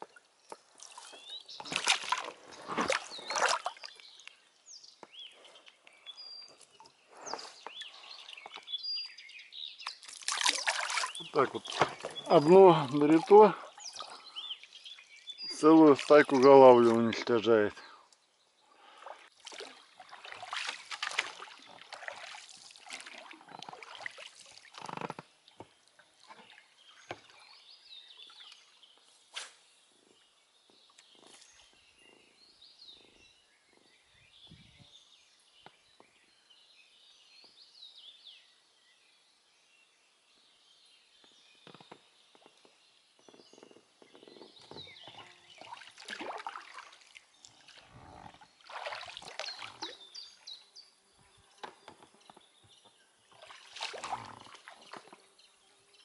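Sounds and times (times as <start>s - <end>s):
water splashes: 0.0s - 4.4s, 9.8s - 17.6s, 18.8s - 27.6s, 45.0s - 50.4s, 53.3s - 55.3s
faint bird chirps: 10.6s - 15.7s, 26.3s - 45.9s.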